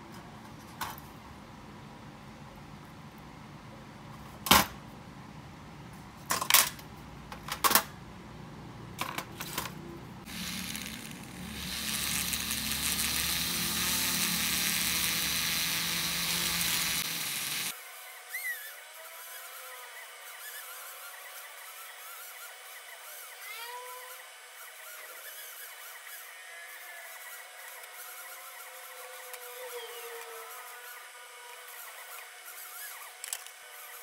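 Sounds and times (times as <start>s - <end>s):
rotary tool wire brush whirring: 10.2s - 23.3s.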